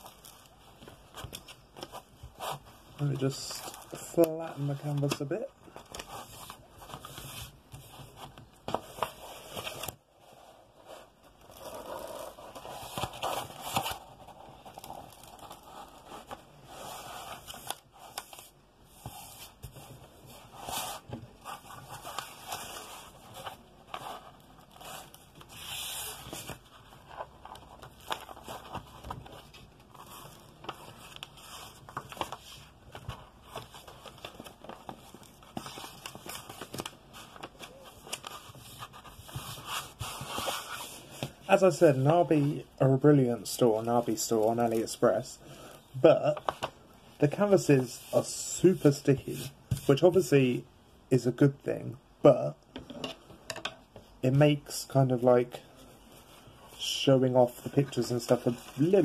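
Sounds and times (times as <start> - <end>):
plastic film rustling and crinkling: 19.5 - 42.5.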